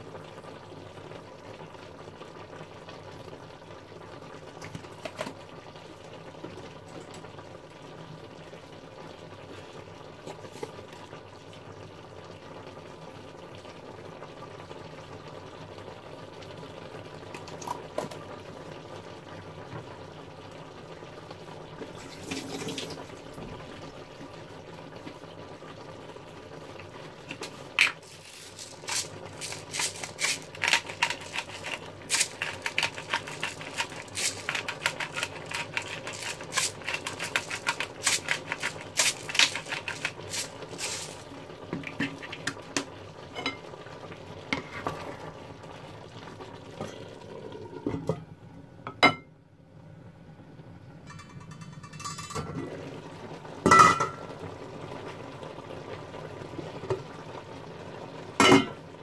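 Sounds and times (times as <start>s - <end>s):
vegetables simmering in a pan: 0.0s - 48.8s, 49.4s - 59.0s
pepper mill grinding: 27.3s - 42.8s.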